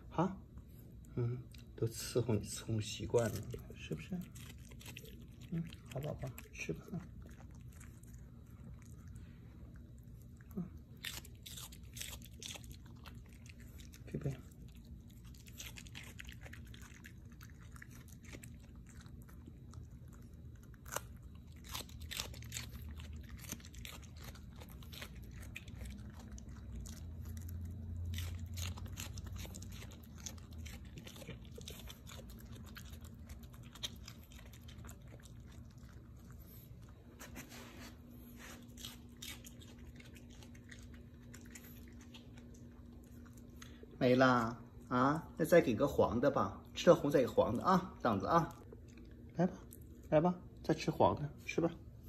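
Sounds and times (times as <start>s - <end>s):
dog chewing crunchy food: 1.6s - 50.9s.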